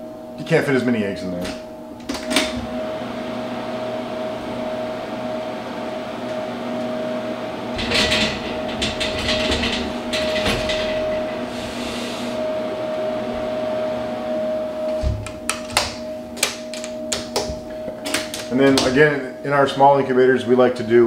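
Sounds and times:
incubator electrical hum: 0.0s - 21.0s
egg trays rattling on metal rails: 7.8s - 11.5s.

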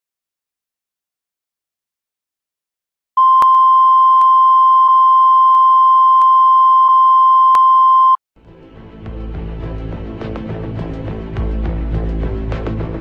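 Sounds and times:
music: 8.4s - 13.0s.

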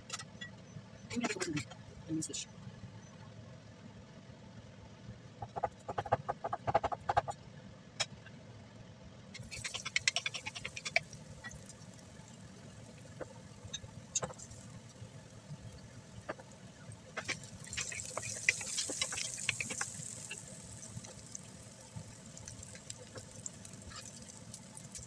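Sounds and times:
hot oil crackling in a pan: 9.4s - 25.0s.

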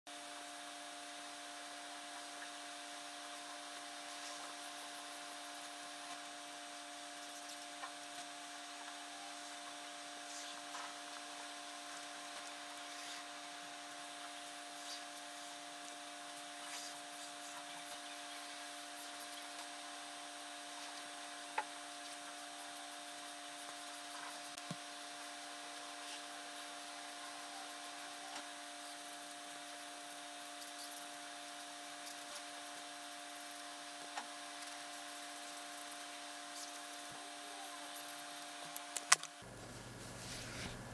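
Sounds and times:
steady hum: 0.1s - 40.9s
marker scratching on paper: 11.8s - 13.4s, 14.4s - 15.6s, 16.5s - 19.7s, 22.0s - 24.6s, 25.8s - 29.8s, 34.2s - 38.5s.

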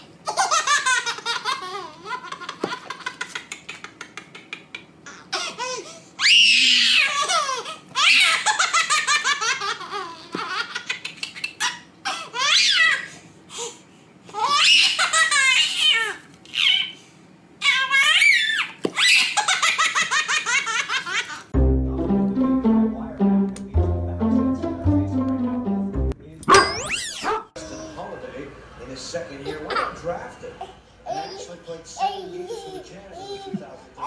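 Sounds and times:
baby laughing: 0.2s - 5.8s, 7.0s - 13.0s.

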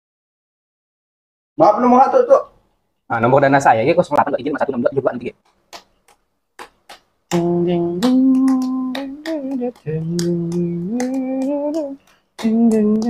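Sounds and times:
person humming a tune: 7.3s - 13.0s.

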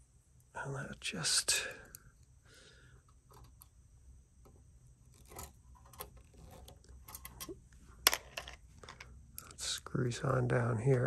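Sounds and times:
metal parts clicking and scraping: 3.2s - 3.7s, 5.1s - 9.5s.

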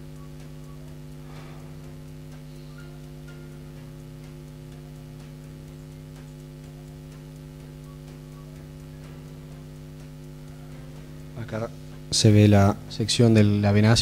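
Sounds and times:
faint ticks: 0.0s - 13.8s
electrical mains hum: 0.0s - 14.0s.

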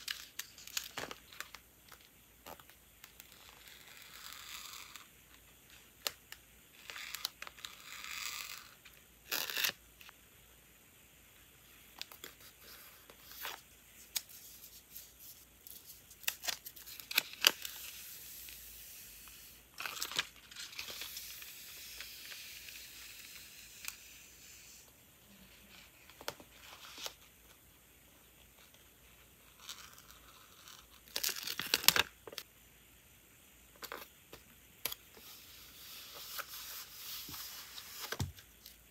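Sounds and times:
tape and stickers peeled and crinkled: 0.0s - 9.8s, 12.0s - 24.8s, 29.4s - 32.4s.

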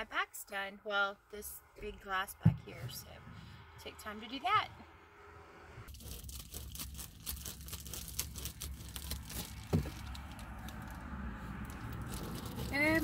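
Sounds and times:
foil insulation crinkling: 5.9s - 13.0s.

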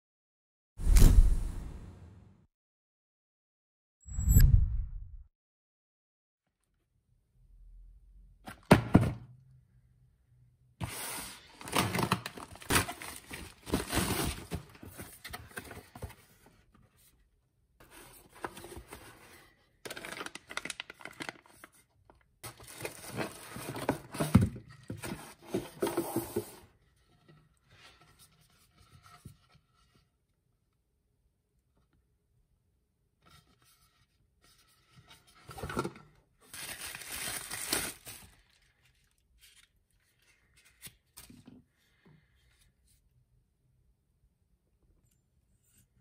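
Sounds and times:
cardboard and foam rustling: 11.0s - 16.6s, 22.4s - 30.1s, 33.7s - 41.2s.

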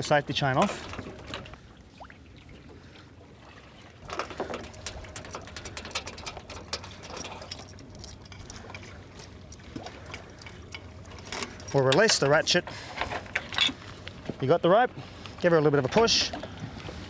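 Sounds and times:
metal chain clinking and rattling: 4.1s - 9.4s, 10.1s - 12.5s.

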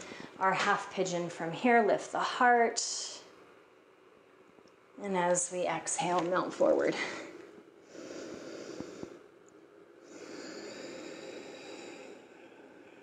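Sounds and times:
woman breathing slowly: 0.0s - 0.4s, 6.9s - 9.4s, 10.0s - 13.0s.

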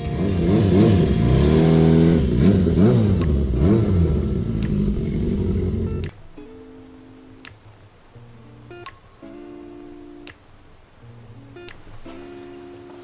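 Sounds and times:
car engine revving: 0.0s - 6.1s.

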